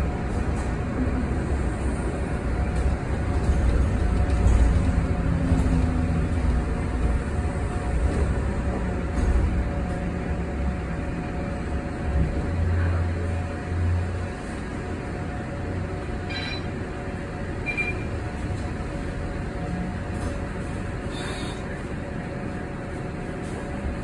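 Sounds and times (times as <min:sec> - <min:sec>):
low road rumble: 0:00.0 - 0:24.0.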